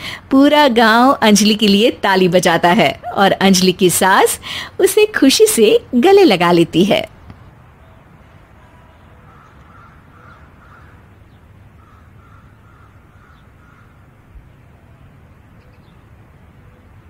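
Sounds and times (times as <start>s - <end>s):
crows cawing: 9.2s - 11.2s, 11.8s - 14.1s.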